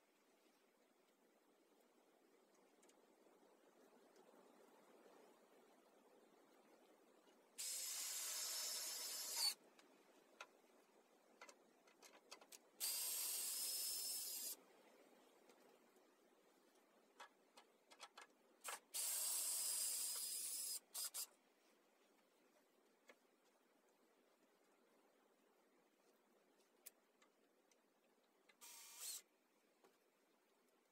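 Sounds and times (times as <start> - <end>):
cordless drill driving screws: 7.6 - 9.6, 12.8 - 14.6, 18.6 - 21.3, 28.6 - 29.3.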